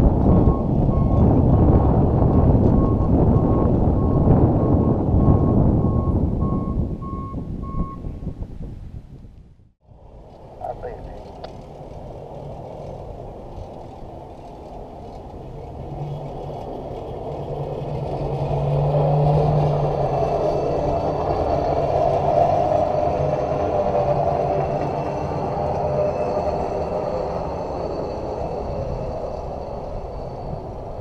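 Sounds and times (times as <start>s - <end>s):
truck running on rails: 0.0s - 8.0s, 10.4s - 31.0s.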